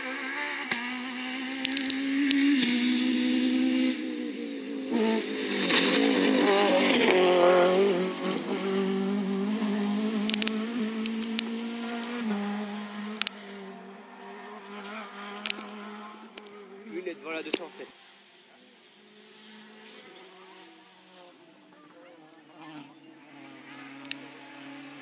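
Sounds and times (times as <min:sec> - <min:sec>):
rally car engine passing: 0:00.0 - 0:25.0
sharp clicks: 0:01.6 - 0:02.4, 0:10.2 - 0:11.5, 0:13.2 - 0:13.4, 0:15.4 - 0:15.8.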